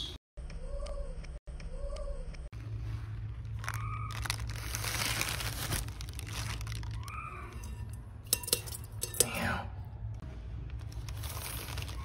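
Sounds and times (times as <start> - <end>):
plastic bag crinkling: 2.9 - 8.0, 10.7 - 12.0
spoon crunching into gravel: 3.3 - 9.3, 10.8 - 12.0.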